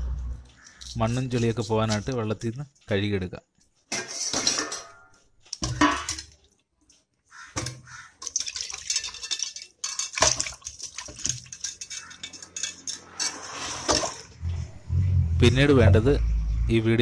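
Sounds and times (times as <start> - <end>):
water sloshing in metal basin: 3.9 - 6.4, 7.6 - 14.6.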